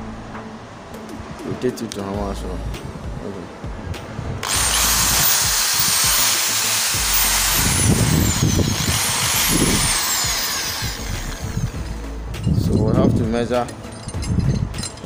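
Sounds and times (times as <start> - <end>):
hammer drill motor whine: 4.4 - 11.8.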